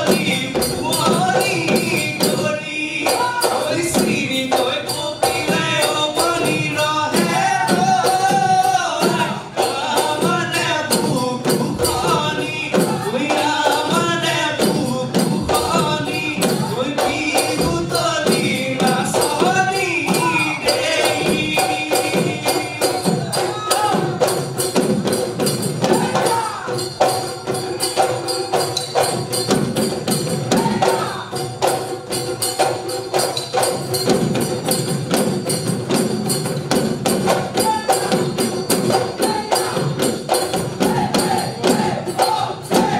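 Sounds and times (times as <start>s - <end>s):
voices singing folk song: 0.0s - 24.7s, 37.6s - 42.9s
dhol drums: 0.0s - 42.9s
jingling hand percussion: 0.0s - 42.9s.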